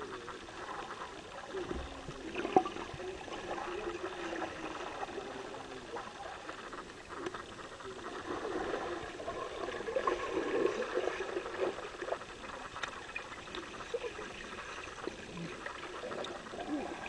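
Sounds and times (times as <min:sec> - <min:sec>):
water splashing and trickling: 0:00.0 - 0:17.0.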